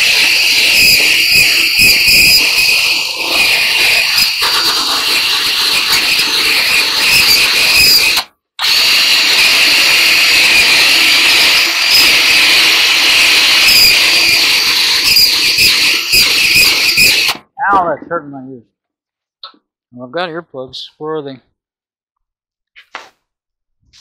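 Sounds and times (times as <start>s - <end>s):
drill squealing into sheet metal: 0.0s - 17.4s.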